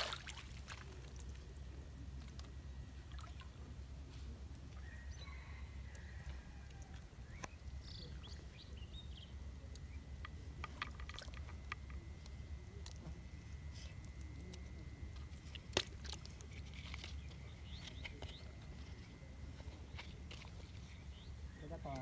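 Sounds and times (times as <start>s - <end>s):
low outdoor rumble: 0.0s - 22.0s
small clicks and drips: 0.1s - 1.5s.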